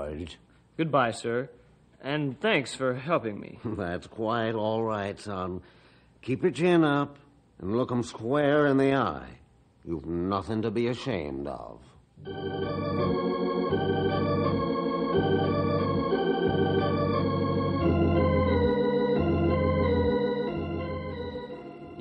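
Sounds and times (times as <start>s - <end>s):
organ music: 12.2s - 22.0s.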